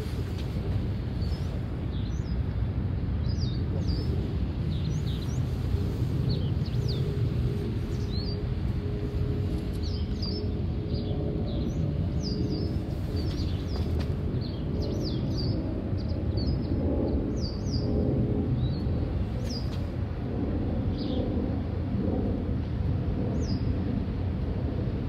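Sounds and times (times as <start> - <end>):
small birds chirping: 0.0 - 2.5, 3.2 - 18.0, 18.6 - 19.8
jet airliner rumble: 0.0 - 25.0.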